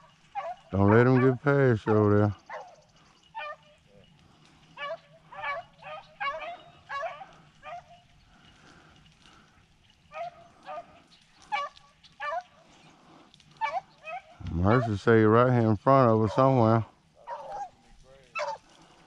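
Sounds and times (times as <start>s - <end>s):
hounds barking faintly: 0.0s - 19.0s.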